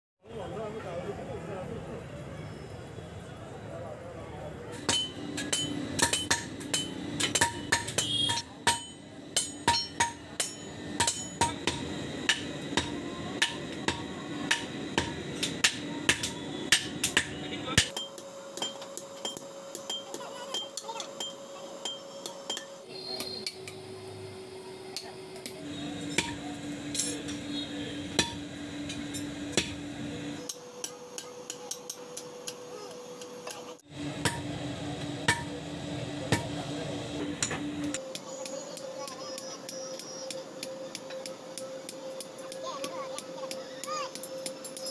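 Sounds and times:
hammer clanking on metal anvil: 4.8s - 12.5s
hammer striking hot iron on anvil: 4.8s - 22.8s, 24.9s - 27.4s, 28.1s - 29.8s, 34.2s - 34.6s, 35.2s - 35.6s.

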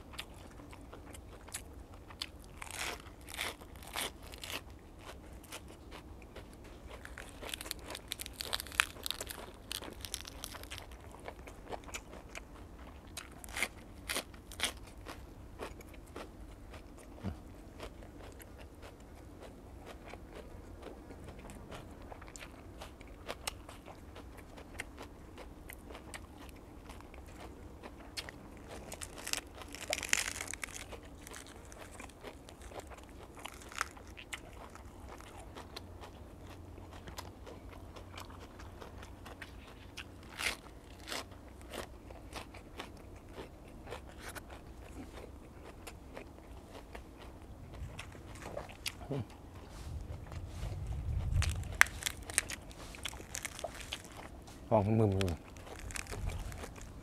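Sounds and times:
chewing and crunching vegetables: 0.0s - 57.0s
lettuce leaf rustling crunch: 1.5s - 12.4s, 28.2s - 35.7s, 38.2s - 57.0s.

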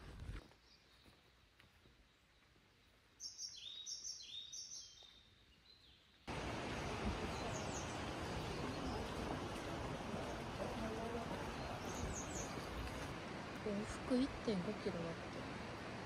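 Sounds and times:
songbird chirping: 0.4s - 15.4s
rushing outdoor noise: 6.3s - 16.0s.

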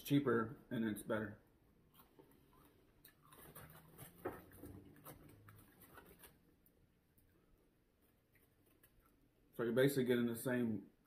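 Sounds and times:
faint clicks and rustles: 1.9s - 9.4s.

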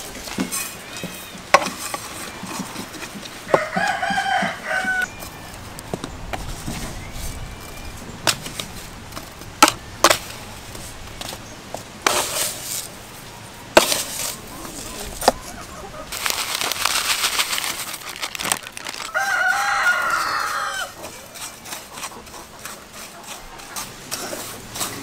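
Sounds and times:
rooster crowing: 3.5s - 5.5s, 19.0s - 21.0s.

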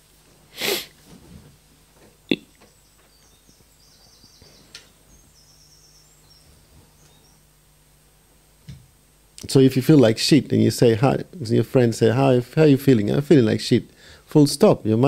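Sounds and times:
breath noise close to microphone: 0.4s - 1.5s, 13.9s - 14.3s
faint high chirps: 2.3s - 7.5s.

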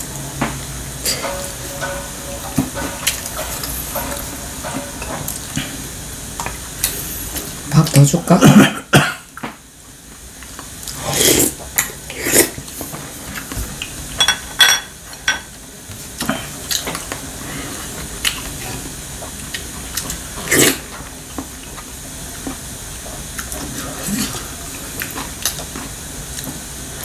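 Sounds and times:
wooden spoon knocking in pot: 1.2s - 5.7s
loud slurp: 10.9s - 12.6s.

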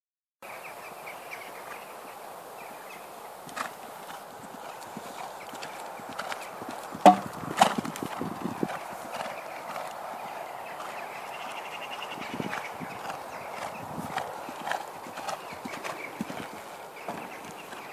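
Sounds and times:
horse hooves on sand: 3.3s - 17.9s
loud thuds of horse jumping: 7.0s - 7.8s.

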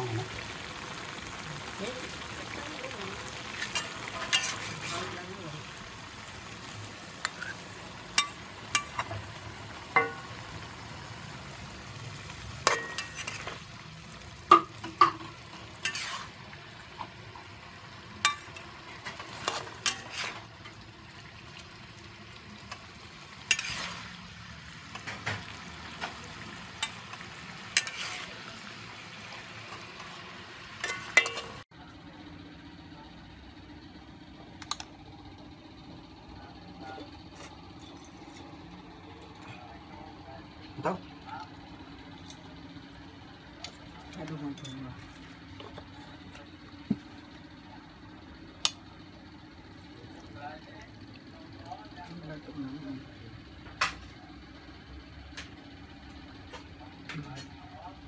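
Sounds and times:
meat and greens sizzling in a wok: 0.0s - 31.7s
metal spatula scraping a pan: 3.4s - 5.3s, 12.6s - 13.6s, 14.8s - 16.6s, 18.5s - 20.6s, 23.4s - 24.2s, 26.8s - 28.6s, 30.8s - 31.6s.

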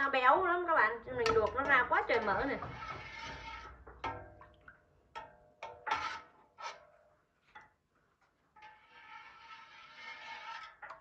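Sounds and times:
utensil clinking against pot: 1.1s - 6.3s.

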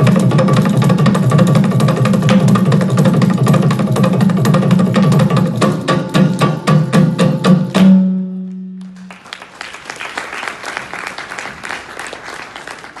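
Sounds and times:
hand drums playing: 0.0s - 9.0s
audience applause: 8.8s - 13.0s.

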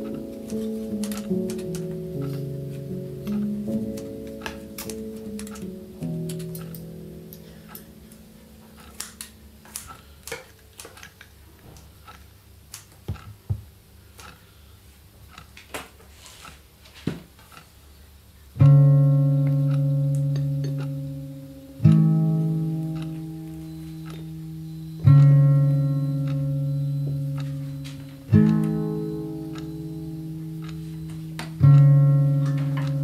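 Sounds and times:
plucked guitar chords: 0.0s - 11.0s, 18.6s - 33.0s.

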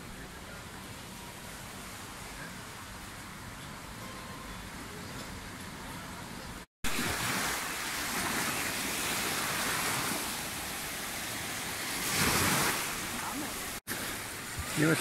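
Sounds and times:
sea surf waves breaking: 6.8s - 15.0s.

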